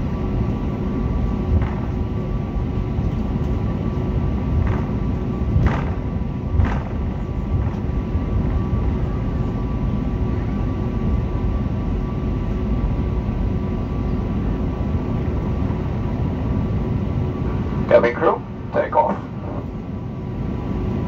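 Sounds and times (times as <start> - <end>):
faint steady whine: 0.0 - 21.0
jet engine low rumble: 0.0 - 21.0.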